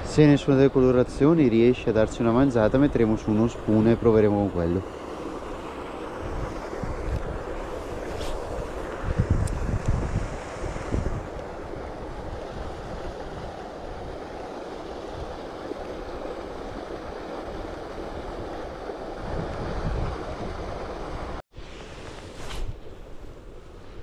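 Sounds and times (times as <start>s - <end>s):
wind noise on microphone: 5.4s - 14.2s, 15.1s - 24.0s.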